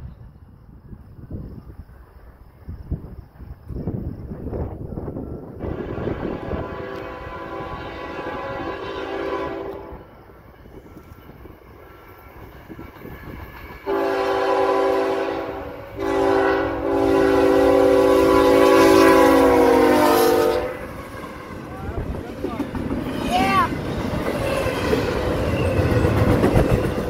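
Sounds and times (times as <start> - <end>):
locomotive horn blasts: 5.7 - 10.1, 13.9 - 21.5.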